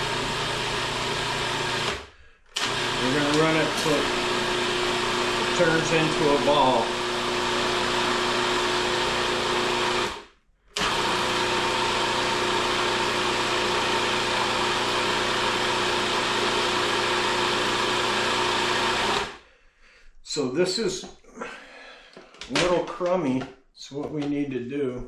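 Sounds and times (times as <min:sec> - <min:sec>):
food processor motor running: 0:00.0 - 0:19.4.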